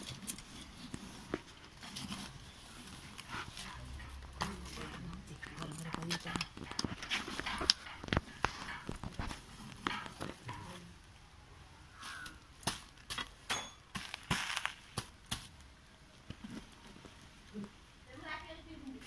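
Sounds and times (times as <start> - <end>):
metal rods scraping and knocking: 0.0 - 10.9.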